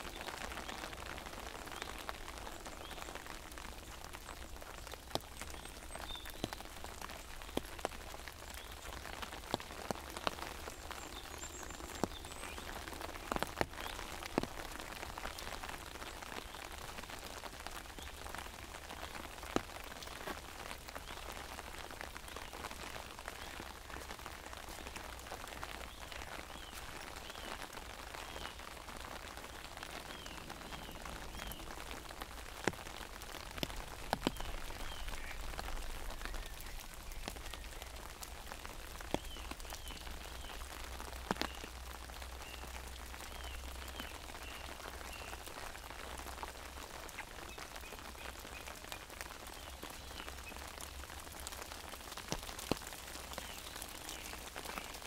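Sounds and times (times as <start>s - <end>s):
rain pattering on an umbrella: 0.0s - 55.0s
drops tapping on umbrella: 33.5s - 35.0s.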